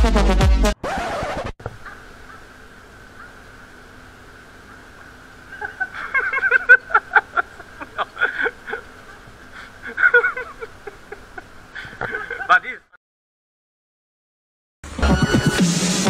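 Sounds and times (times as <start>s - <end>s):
faint steady hum: 1.6s - 13.0s
people laughing: 5.5s - 12.8s.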